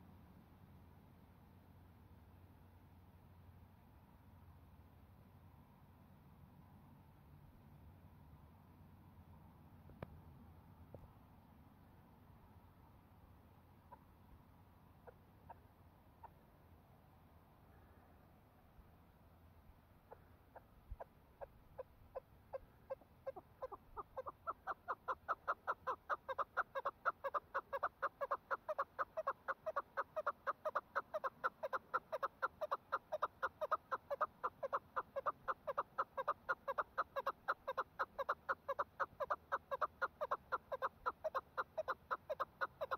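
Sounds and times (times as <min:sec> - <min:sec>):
partridge clucking calls: 0:20.1 - 0:42.9.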